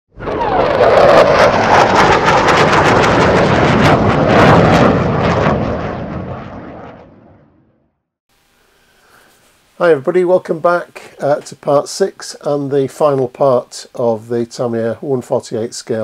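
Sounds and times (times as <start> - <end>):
jet aircraft flying past: 0.1 - 7.9.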